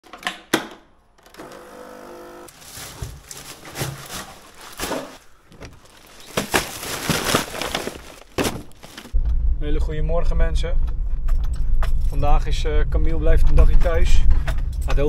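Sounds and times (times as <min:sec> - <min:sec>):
small electric appliance humming: 0:01.3 - 0:02.5
garden waste dropping into bin: 0:02.5 - 0:09.2
rustling and knocking: 0:02.5 - 0:09.2.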